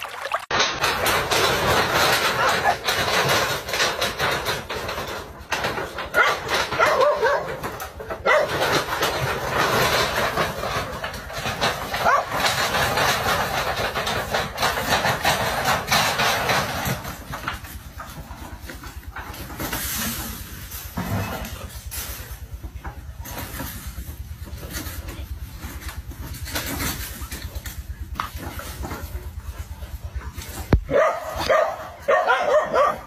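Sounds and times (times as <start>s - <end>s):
dense clatter and rushing noise: 0.5s - 32.1s
dogs barking and yelping: 1.7s - 17.4s, 28.4s - 33.0s.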